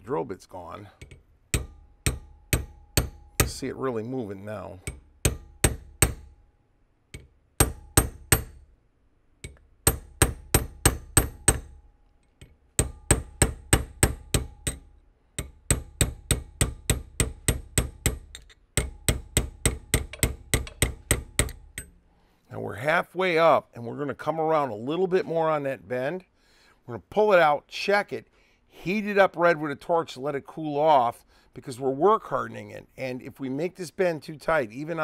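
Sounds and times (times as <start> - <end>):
hammer striking steel punch: 1.0 - 3.6, 4.8 - 6.4, 7.2 - 8.7, 9.4 - 11.8, 12.8 - 22.0.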